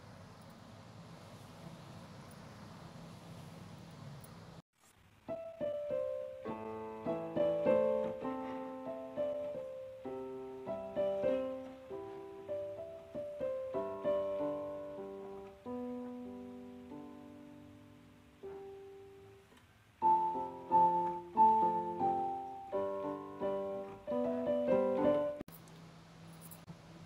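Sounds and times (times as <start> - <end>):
faint hiss: 0.0 - 27.0
piano music: 5.3 - 25.5.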